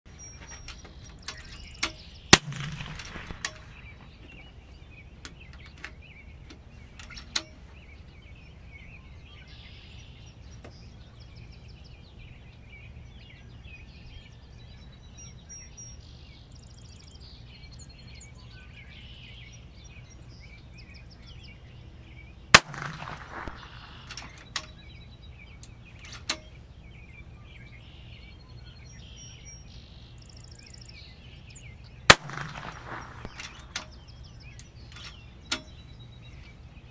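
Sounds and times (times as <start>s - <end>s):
birds chirping: 0.0s - 36.9s
air rifle shots: 1.3s - 4.0s, 22.6s - 24.8s, 32.1s - 34.1s
light clicks: 32.1s - 35.9s.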